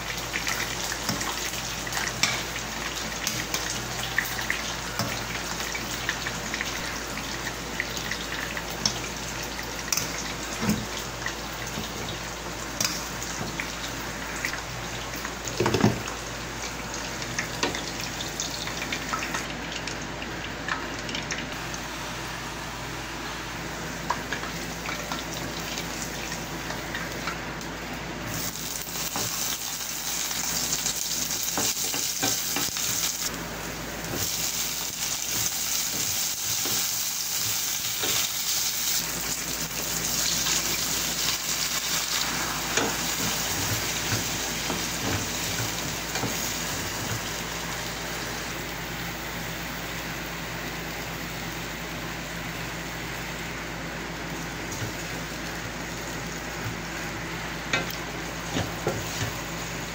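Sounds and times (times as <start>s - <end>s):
oil sizzling in a frying pan: 0.0s - 59.9s.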